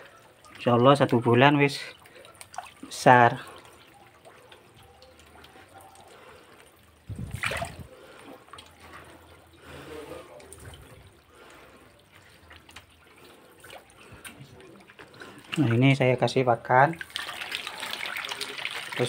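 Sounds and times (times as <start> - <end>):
small splashes: 0.0 - 16.1, 16.7 - 19.0
water trickling in bucket: 0.0 - 19.0.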